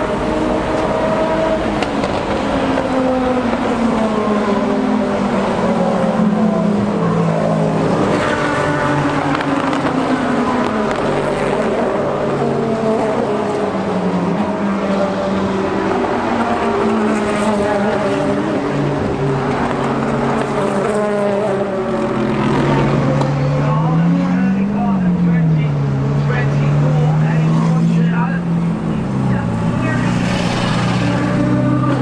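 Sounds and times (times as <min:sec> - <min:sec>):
race car engines running: 0:00.0 - 0:32.0.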